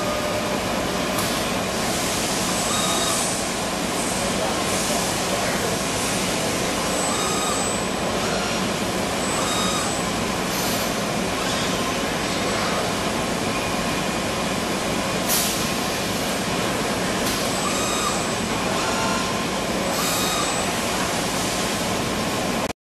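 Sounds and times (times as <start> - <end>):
steady machine noise: 0.0 - 22.7
faint machine whines: 2.4 - 3.5, 6.4 - 14.3, 17.4 - 21.0.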